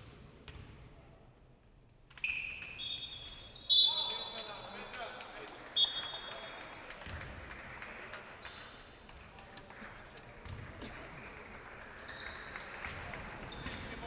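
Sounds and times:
sneaker squeaks: 2.2 - 4.6, 11.9 - 14.0.

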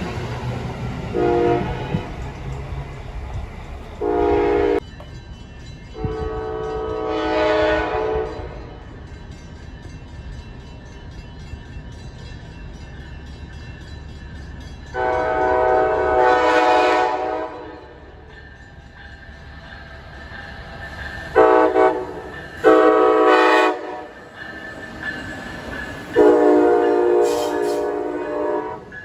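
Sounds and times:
low train rumble: 0.0 - 29.0
train horn blasts: 1.1 - 2.1, 4.0 - 4.8, 6.0 - 8.7, 14.9 - 18.1, 21.3 - 24.2, 26.1 - 29.0.

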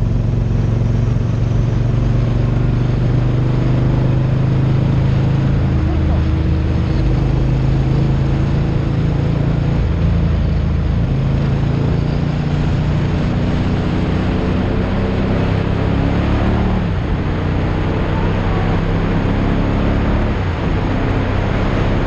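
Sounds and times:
racing sidecar engine: 0.0 - 22.0
wind and road rush: 0.0 - 22.0.

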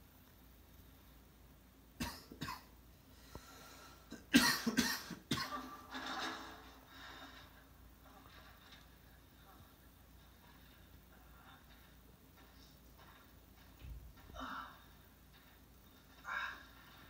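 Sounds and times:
person coughing: 2.0 - 2.7, 4.1 - 5.8.

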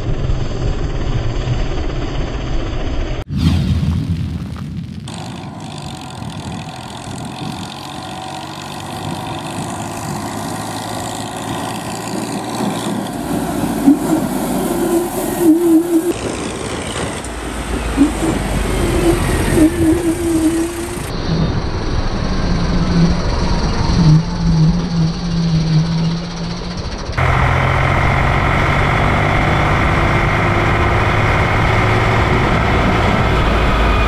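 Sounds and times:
tractor diesel engine running: 5.1 - 34.0
wavering high tone: 5.2 - 16.2, 18.0 - 21.5.

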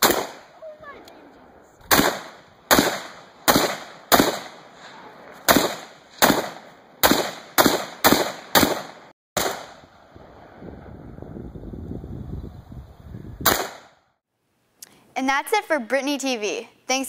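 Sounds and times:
rifle shots with echo: 0.0 - 0.6, 1.9 - 9.9, 13.4 - 14.0.

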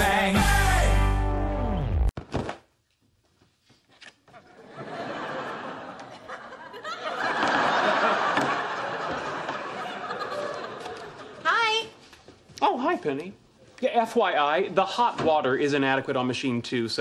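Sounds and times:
studio audience laughing: 4.4 - 11.4.

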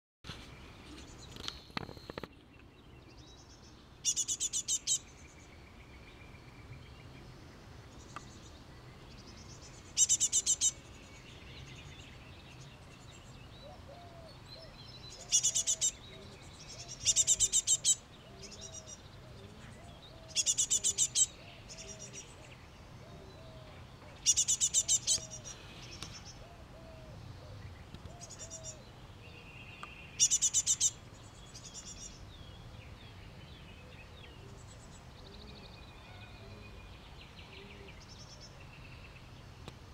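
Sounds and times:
bird fledgling begging calls: 4.0 - 5.0, 10.0 - 10.8, 15.1 - 16.0, 16.7 - 18.8, 20.2 - 22.1, 24.2 - 26.5, 30.2 - 31.0.

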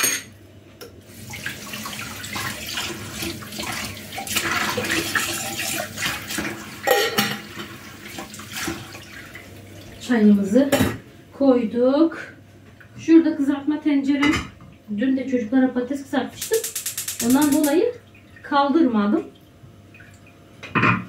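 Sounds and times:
tap water running into sink: 1.1 - 10.0
pot knocking against sink: 20.6 - 21.0.

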